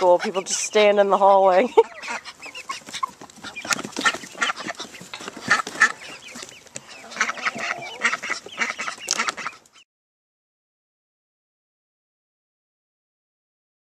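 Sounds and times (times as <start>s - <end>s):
chickens clucking: 0.0s - 9.8s
ducks quacking: 0.0s - 9.8s.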